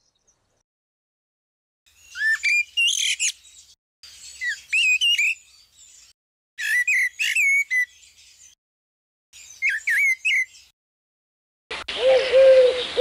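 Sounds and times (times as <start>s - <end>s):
blackbird singing: 2.0s - 8.6s, 9.4s - 10.7s, 11.9s - 13.0s.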